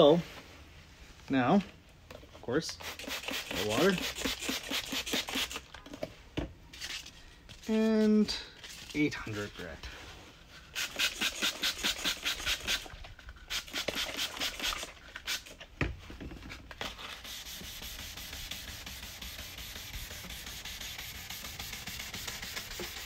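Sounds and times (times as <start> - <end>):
wet sanding of plastic: 2.9 - 5.6, 16.9 - 23.0.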